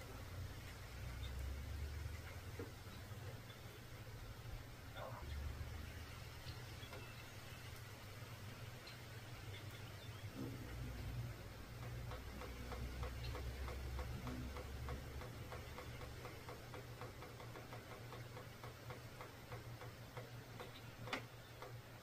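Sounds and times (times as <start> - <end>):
low hum: 0.0 - 16.0
soft even ticks: 0.6 - 3.7, 8.8 - 21.9.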